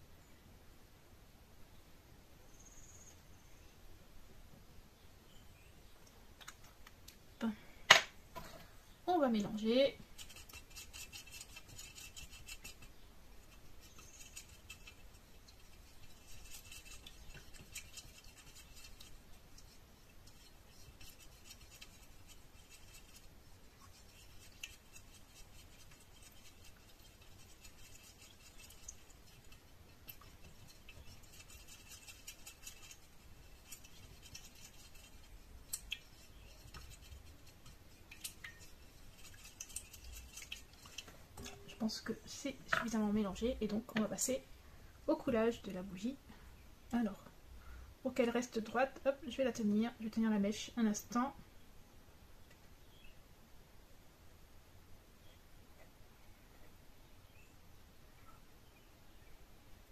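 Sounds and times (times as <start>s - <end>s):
stick scraping metal bowl: 9.5s - 43.1s.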